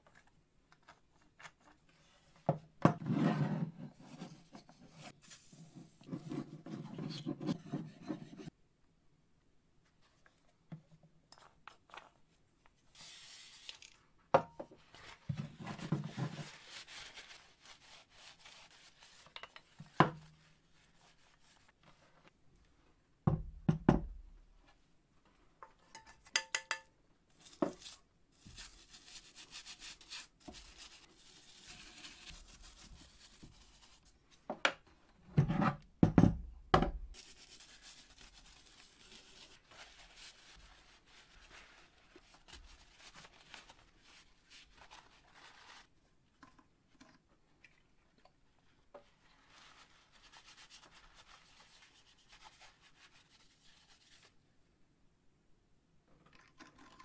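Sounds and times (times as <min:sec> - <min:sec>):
brush scrubbing: 0:27.5 - 0:34.1.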